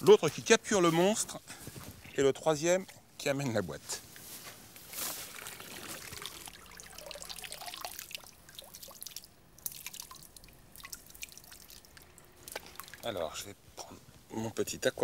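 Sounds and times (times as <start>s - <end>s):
water splash: 4.9s - 13.1s
water dripping and trickling: 4.9s - 13.4s.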